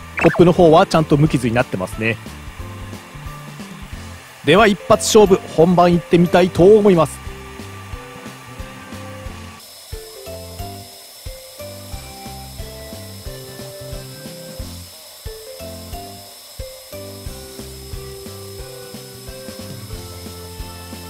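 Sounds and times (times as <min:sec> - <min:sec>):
ticks at direction changes: 0:00.0 - 0:00.6
thin steady high tone: 0:00.0 - 0:00.7
stepper motors whirring: 0:05.1 - 0:21.0.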